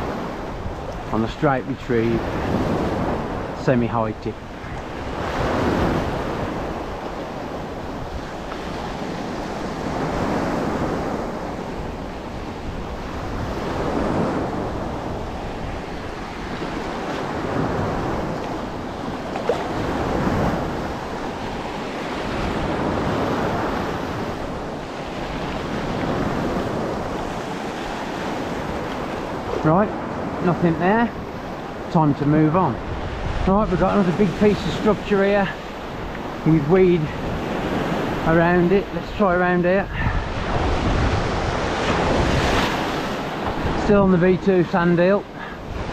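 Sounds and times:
small waves breaking: 0:00.0 - 0:45.9
wind buffeting microphone: 0:00.0 - 0:45.9.

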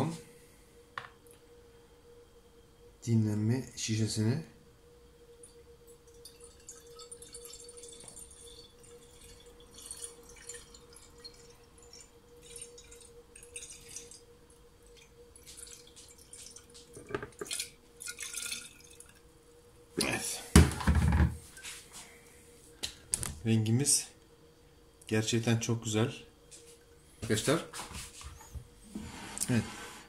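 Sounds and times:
liquid dripping into glass bottle: 0:05.4 - 0:19.2.

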